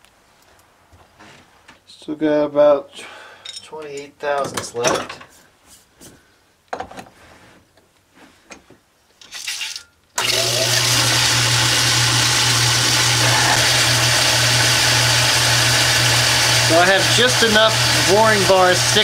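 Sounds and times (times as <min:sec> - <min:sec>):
metal lathe humming: 0:10.2 - 0:19.0.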